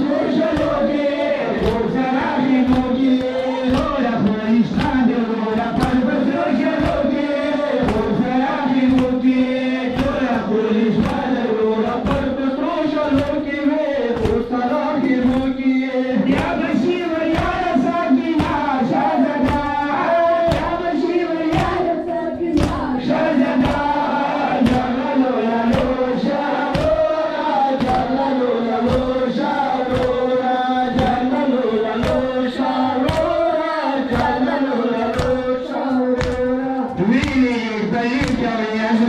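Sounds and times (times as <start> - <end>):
men chanting in unison: 0.0 - 39.0
hands slapping chests: 0.5 - 2.0, 2.6 - 7.2, 7.8 - 8.2, 8.9 - 9.2, 9.9 - 12.4, 13.0 - 15.6, 16.2 - 16.6, 17.2 - 18.7, 19.4 - 20.9, 21.5 - 21.9, 22.6 - 22.9, 23.6 - 25.0, 25.6 - 28.2, 28.8 - 31.3, 32.0 - 32.3, 33.0 - 33.4, 34.0 - 34.4, 35.0 - 35.5, 36.1 - 37.6, 38.2 - 38.5.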